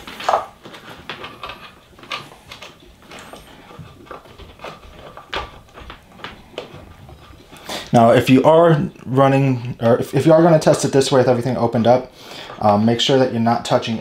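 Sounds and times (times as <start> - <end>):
hands handling wiring and parts: 0.0 - 8.3.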